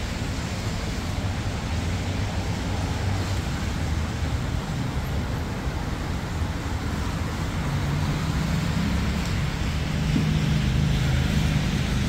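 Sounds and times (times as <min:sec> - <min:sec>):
road traffic rumble: 0:00.0 - 0:12.0
low engine hum: 0:00.6 - 0:12.0.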